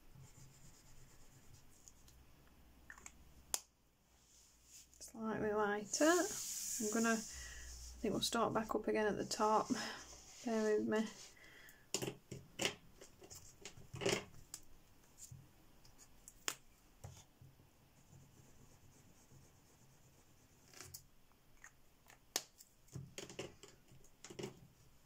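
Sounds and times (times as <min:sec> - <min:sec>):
crayon rubbing on paper: 0:05.8 - 0:08.0.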